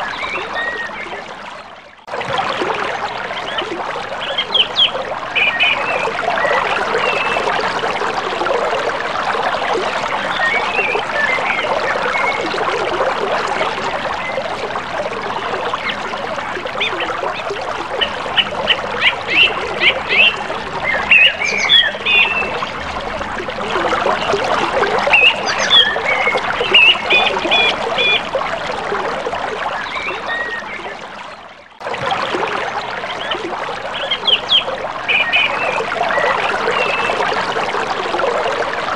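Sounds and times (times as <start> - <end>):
birds chirping: 3.4 - 7.5, 15.2 - 28.3, 33.1 - 37.2.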